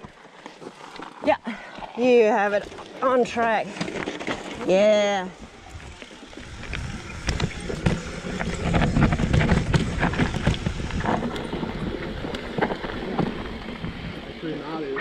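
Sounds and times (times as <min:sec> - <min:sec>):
bike tyre rumble: 0:00.0 - 0:15.0
wind on microphone: 0:05.4 - 0:14.4
bike knocks and rattles: 0:06.3 - 0:14.2.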